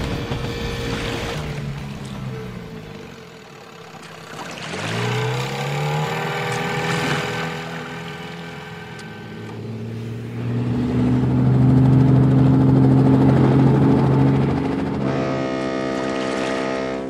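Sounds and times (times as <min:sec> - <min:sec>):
cartoon helicopter engine: 0:11.5 - 0:16.4.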